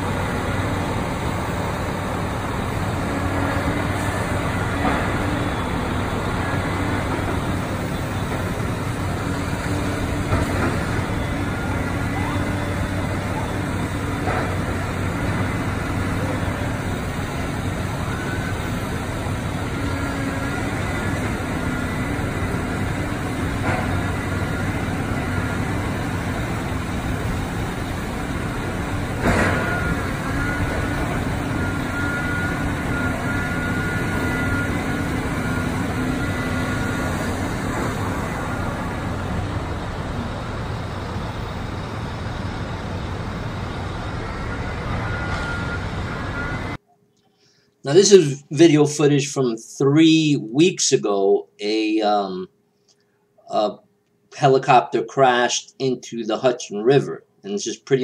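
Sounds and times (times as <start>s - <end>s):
diesel excavator running: 0.0s - 46.8s
street traffic: 0.0s - 46.8s.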